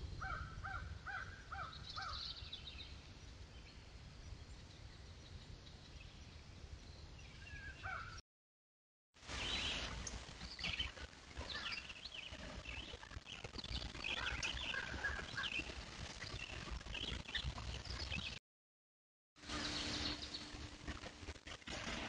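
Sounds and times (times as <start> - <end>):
bird calls: 0.2 - 3.0, 4.4 - 8.2, 9.3 - 18.4, 19.4 - 20.6.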